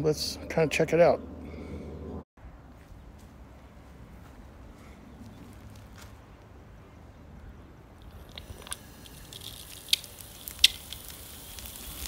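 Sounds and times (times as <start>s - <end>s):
sharp pops: 8.0s - 12.0s
hiss of spraying water: 8.2s - 12.0s.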